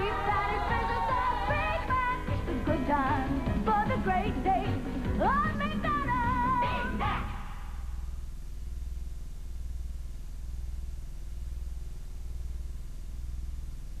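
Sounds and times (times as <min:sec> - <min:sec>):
low electrical hum: 0:00.0 - 0:14.0.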